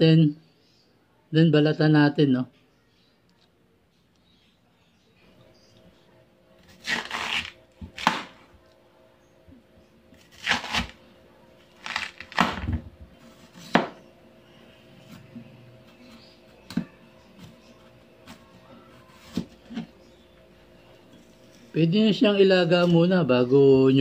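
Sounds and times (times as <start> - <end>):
knife chopping on plastic board: 6.9 - 8.4, 12.2 - 12.8, 13.5 - 14.0, 16.7 - 17.6.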